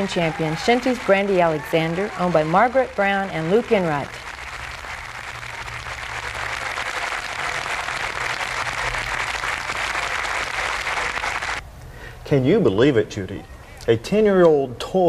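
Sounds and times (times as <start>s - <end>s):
large audience applauding: 0.0s - 11.6s.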